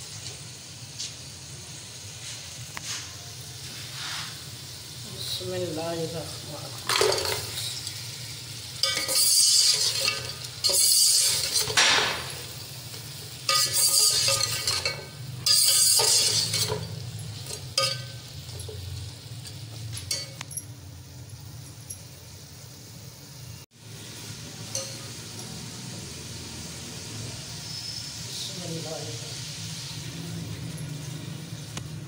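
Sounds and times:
meat sizzling in hot oil: 0:00.0 - 0:32.0
metal spoon clinking on pot: 0:06.8 - 0:07.9, 0:08.8 - 0:12.6, 0:13.4 - 0:20.8, 0:24.7 - 0:25.6.

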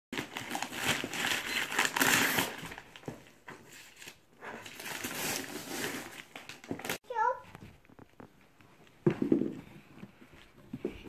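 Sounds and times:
wrapping paper crinkling and tearing: 0:00.2 - 0:03.0, 0:03.7 - 0:07.0.

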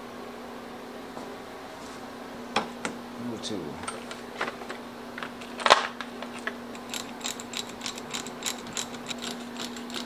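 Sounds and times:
socket ratchet clicking: 0:06.8 - 0:10.0.

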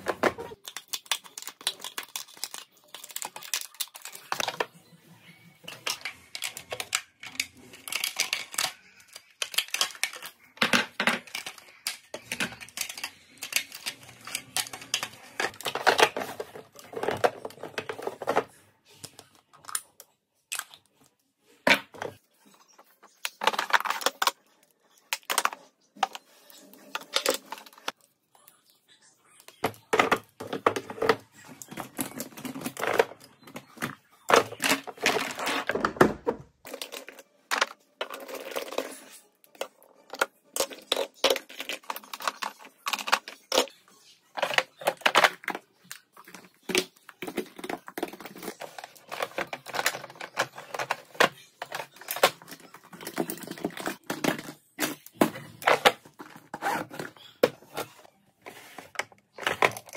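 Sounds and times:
makeup cases clicking and clacking: 0:05.7 - 0:18.5, 0:29.6 - 0:43.7, 0:44.4 - 0:58.0, 0:59.0 - 0:59.9.

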